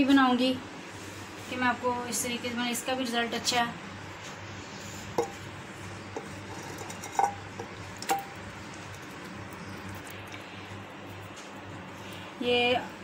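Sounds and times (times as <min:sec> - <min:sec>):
glass bowl clinking on clay pot: 0:05.2 - 0:05.4, 0:06.2 - 0:08.4.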